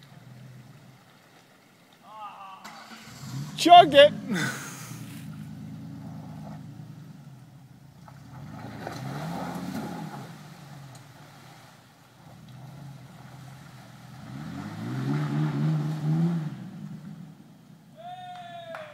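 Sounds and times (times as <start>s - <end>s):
pickup engine revving: 2.6s - 17.5s.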